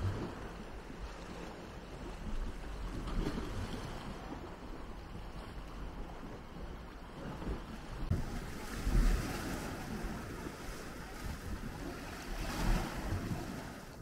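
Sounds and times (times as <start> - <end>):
wind rumbling on microphone: 0.0 - 14.0
waves lapping against seawall: 7.1 - 14.0.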